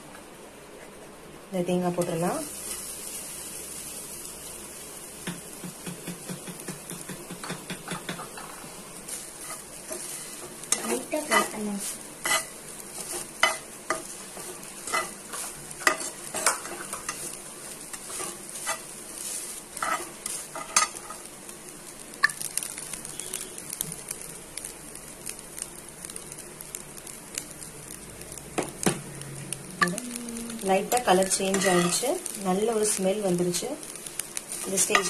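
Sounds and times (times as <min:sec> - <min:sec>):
coconut sizzling in a frying pan: 0:00.0 - 0:35.0
spatula scraping and tapping a pan: 0:09.4 - 0:11.6, 0:12.2 - 0:18.9, 0:19.8 - 0:21.3, 0:31.2 - 0:32.0, 0:34.8 - 0:35.0.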